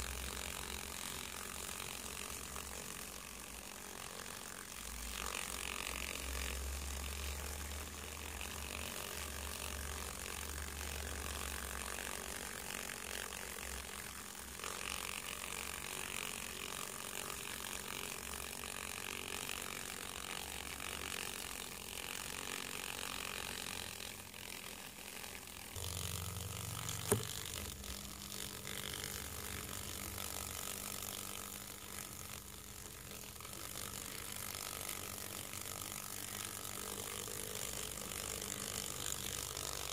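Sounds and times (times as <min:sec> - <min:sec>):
moth wings whirring: 0:18.7 - 0:39.9
low steady hum: 0:25.8 - 0:33.5.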